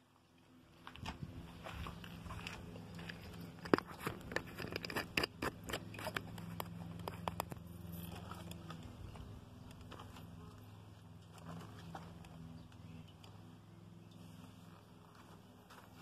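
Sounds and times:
steady low hum: 0.0s - 16.0s
handling clicks and scrapes: 1.9s - 13.4s.

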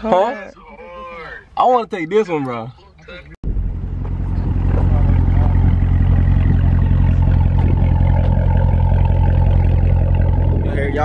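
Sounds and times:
car engine running steadily: 3.4s - 11.0s.

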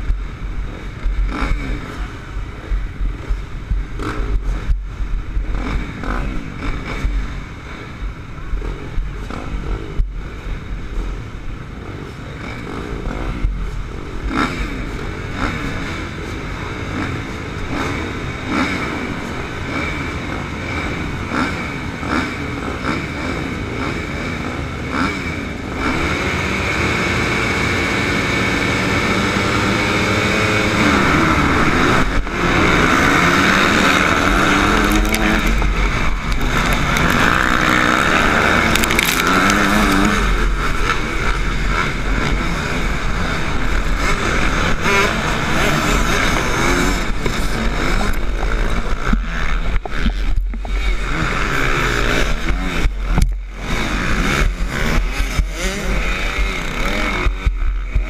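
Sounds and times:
dirt bike engine revving: 0.0s - 58.0s
motocross bikes pack: 14.3s - 58.0s.

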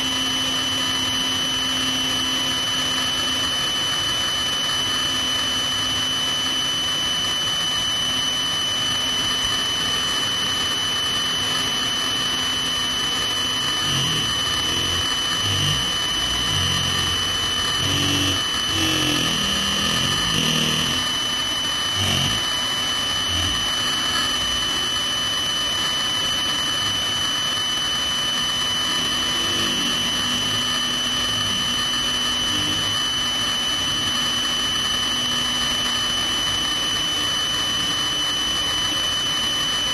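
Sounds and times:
helicopter turbine whine: 0.0s - 37.4s.

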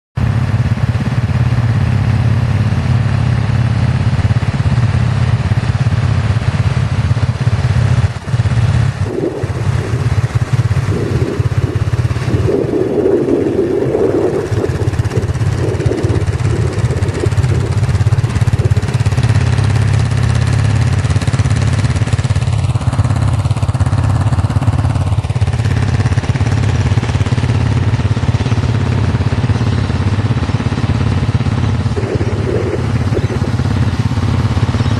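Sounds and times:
quad bike engine idling: 0.2s - 34.9s.

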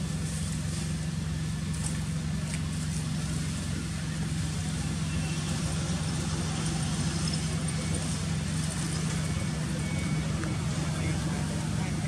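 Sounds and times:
engine running with hiss: 0.0s - 12.0s.

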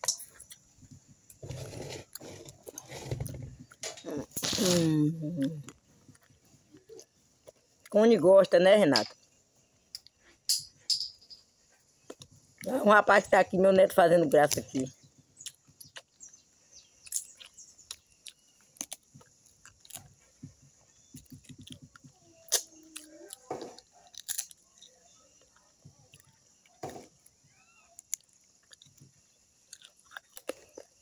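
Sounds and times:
chewing: 15.4s - 31.0s
crab shells cracking: 22.5s - 25.5s.

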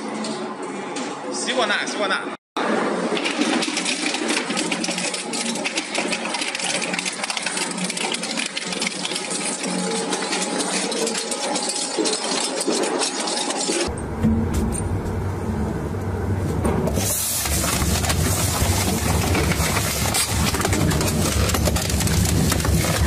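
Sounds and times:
shredding machine clattering: 16.6s - 23.0s.

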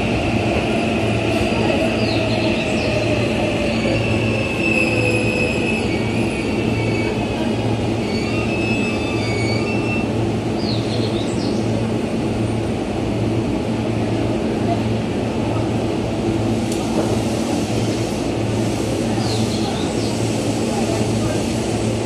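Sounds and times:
train rumble: 0.0s - 22.0s
train wheels squealing: 0.8s - 11.3s.

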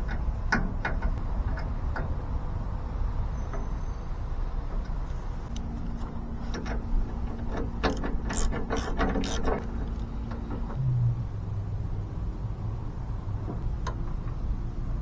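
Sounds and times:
rapid ratcheting clicks: 7.5s - 9.6s.

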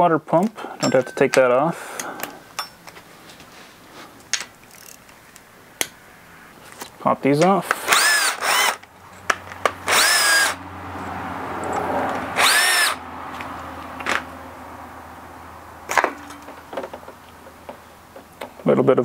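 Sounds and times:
cordless power tool whine: 7.8s - 8.9s, 9.6s - 10.6s, 11.7s - 13.0s.

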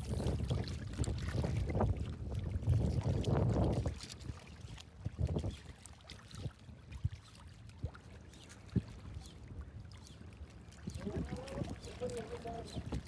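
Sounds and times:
wind rumbling on microphone: 0.0s - 7.2s, 10.7s - 13.0s
waves lapping against rocks: 0.0s - 13.0s.

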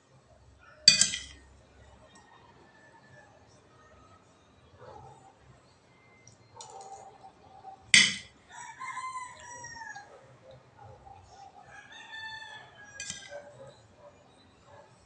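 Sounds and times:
spoon clinking against dishes: 0.8s - 1.4s, 8.0s - 8.3s, 13.0s - 13.5s
rooster crowing: 8.5s - 10.2s, 11.3s - 13.7s.

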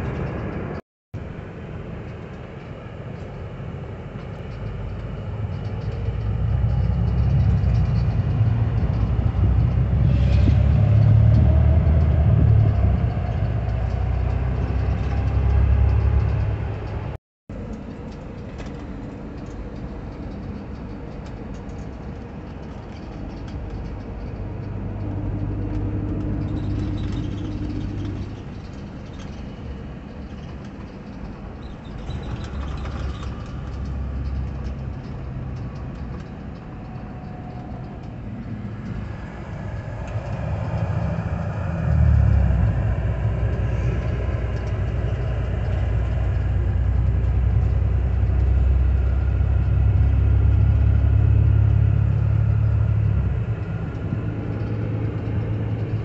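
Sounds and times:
vehicle interior rumble: 0.0s - 56.0s
rising whine: 36.7s - 56.0s.

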